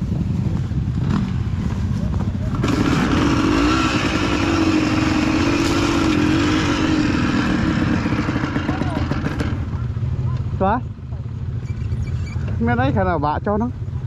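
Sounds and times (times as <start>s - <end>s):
dirt bike engine revving: 0.9s - 9.8s.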